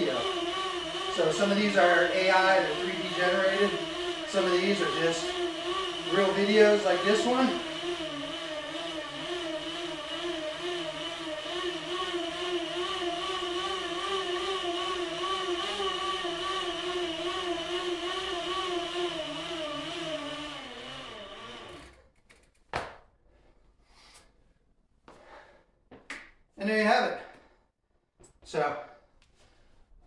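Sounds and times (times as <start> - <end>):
bicycle rollers whirring: 0.0 - 22.6.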